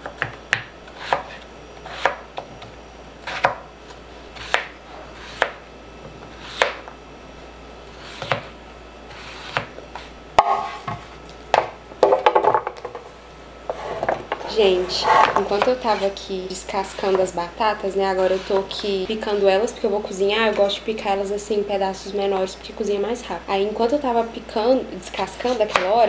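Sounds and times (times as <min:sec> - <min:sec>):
knife chopping on plastic board: 0:00.0 - 0:03.6, 0:04.4 - 0:05.6, 0:06.4 - 0:06.9, 0:08.2 - 0:08.5, 0:09.4 - 0:09.7.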